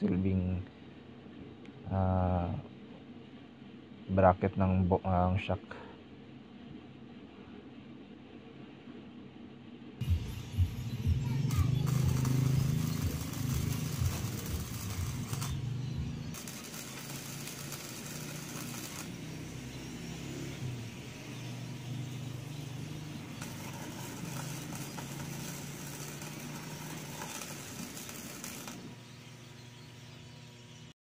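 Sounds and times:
low mains hum: 0.0 - 31.0
welding arc noise: 10.0 - 31.0.

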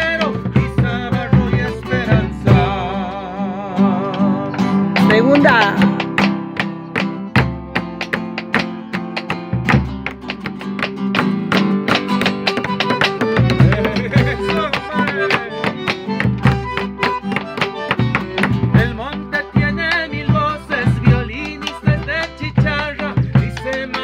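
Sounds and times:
classical guitar strumming and picking: 0.0 - 24.0.

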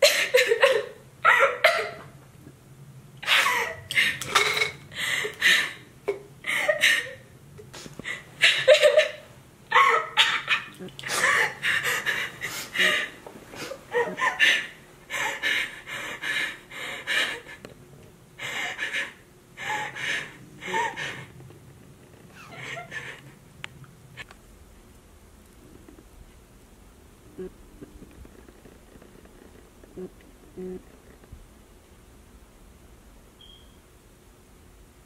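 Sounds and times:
girl crying and gasping: 0.0 - 2.0, 8.1 - 10.3.

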